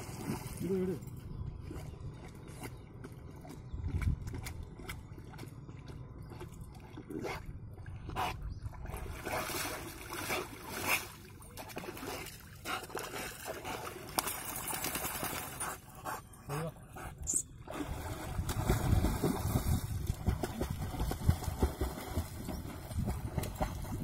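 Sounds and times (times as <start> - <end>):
dog splashing in water: 8.9 - 15.7, 17.7 - 24.0.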